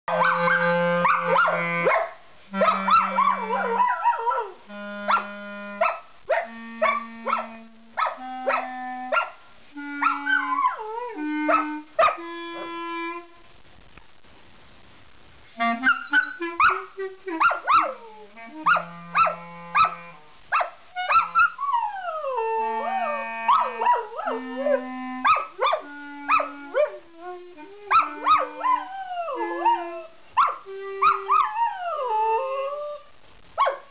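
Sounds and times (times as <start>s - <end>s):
clarinet playing scales: 0.1s - 13.5s, 15.4s - 33.2s
dog howling: 2.6s - 5.2s, 21.1s - 33.1s.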